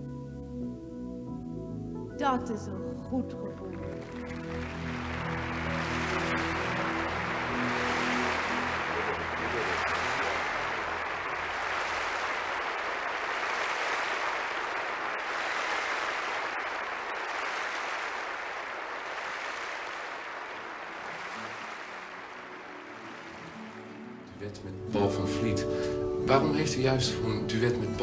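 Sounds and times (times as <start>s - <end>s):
large audience applauding: 3.5s - 25.5s.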